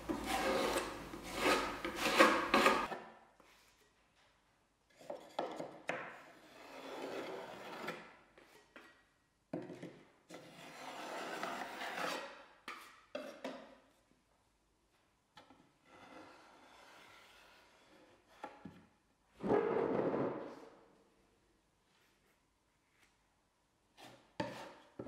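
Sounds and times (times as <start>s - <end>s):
filler knife scraping wood: 0.0s - 3.0s, 24.0s - 25.0s.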